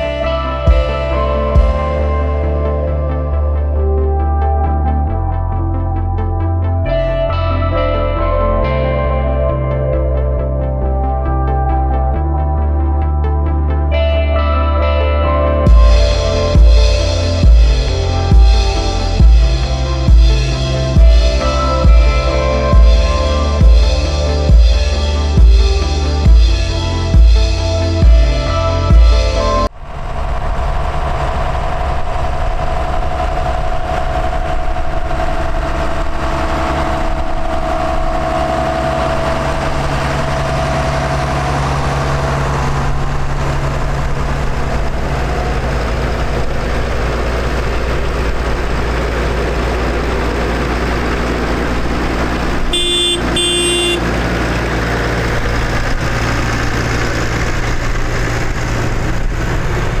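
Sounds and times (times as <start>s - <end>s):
tractor diesel engines passing: 29.5s - 60.0s
horn toot: 52.7s - 54.3s.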